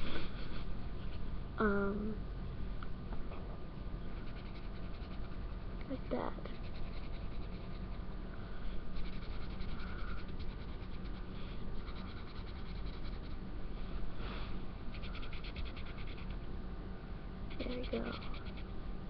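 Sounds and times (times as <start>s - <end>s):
marker scratching on paper: 4.2s - 8.0s, 9.0s - 13.4s, 14.9s - 16.3s, 17.5s - 18.7s.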